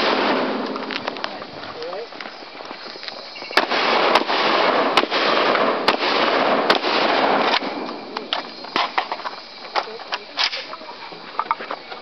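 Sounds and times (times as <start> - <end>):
rapid shotgun fire: 0.0 - 0.9, 3.6 - 8.1.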